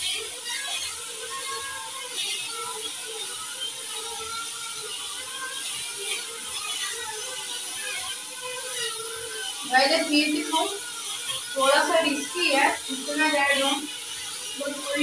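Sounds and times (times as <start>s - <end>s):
drone propellers buzzing: 0.0s - 15.0s.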